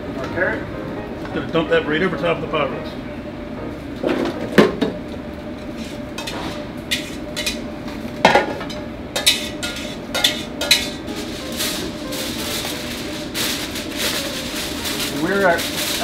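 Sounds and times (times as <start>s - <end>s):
metal pot and pan clanking: 6.2s - 7.6s, 8.2s - 12.4s.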